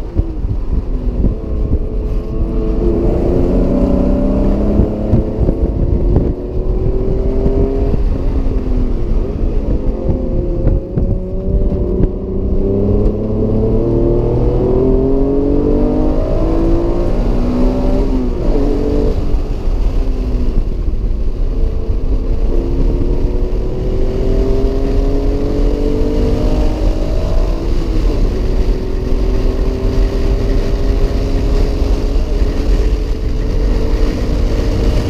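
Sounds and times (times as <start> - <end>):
car engine revving from cabin: 0.6 - 19.3.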